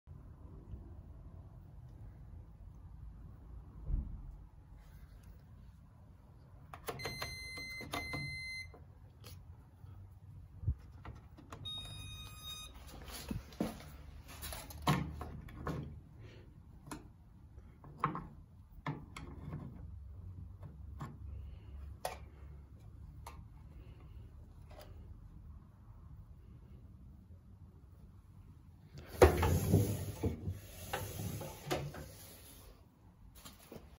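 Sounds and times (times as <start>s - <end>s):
washing machine beeping: 6.7s - 8.9s, 11.4s - 13.4s.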